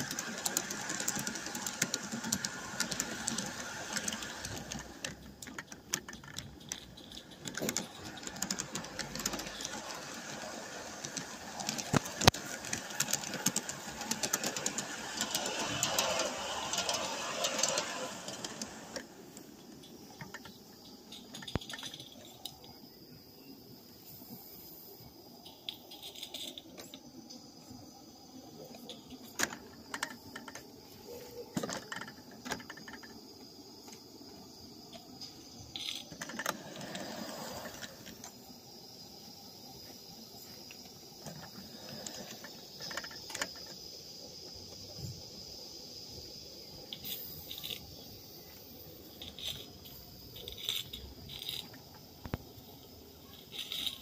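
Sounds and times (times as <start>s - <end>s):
metallic clicks and clanks: 0.0s - 22.7s, 25.4s - 27.1s, 28.7s - 34.1s, 34.9s - 38.4s, 40.7s - 43.9s, 49.1s - 54.0s
faint high steam hiss: 0.0s - 54.0s.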